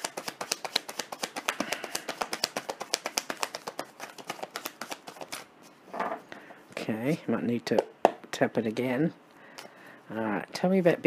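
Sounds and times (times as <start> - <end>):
cards being shuffled: 0.0 - 5.5.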